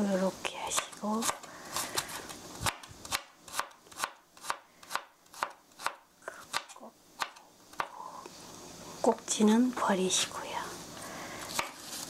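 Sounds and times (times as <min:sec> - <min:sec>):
knife chopping onion on board: 0:00.7 - 0:07.9.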